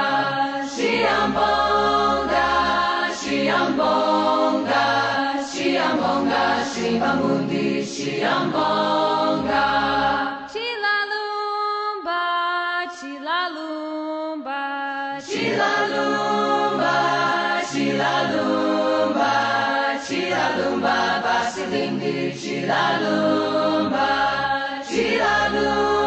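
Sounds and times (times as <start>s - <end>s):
choir singing in harmony: 0.0s - 10.6s, 15.2s - 26.0s
single high voice singing: 12.0s - 26.0s.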